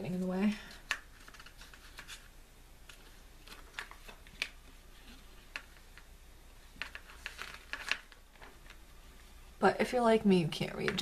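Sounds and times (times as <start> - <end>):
paper pages rustling: 0.1 - 6.1, 6.7 - 8.9.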